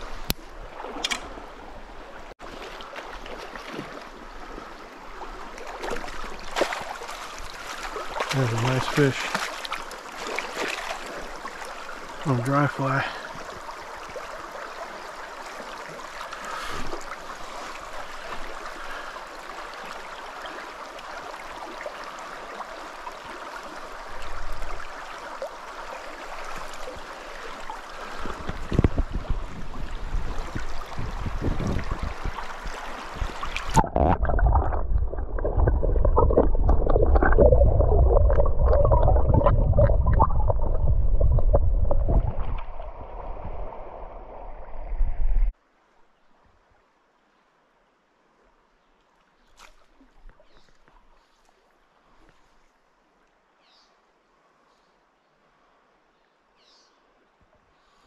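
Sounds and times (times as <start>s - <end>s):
river running over gravel: 0.0s - 43.0s
water gurgling and sloshing: 0.0s - 45.6s
splashing and knocking in water: 2.4s - 4.2s, 5.6s - 11.4s, 30.2s - 42.9s
muffled underwater rumbling: 33.6s - 45.5s.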